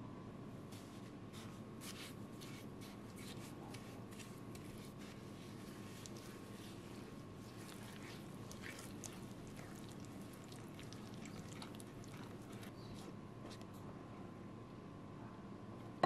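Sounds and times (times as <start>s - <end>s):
spatula stirring in glass bowl: 2.4s - 13.1s.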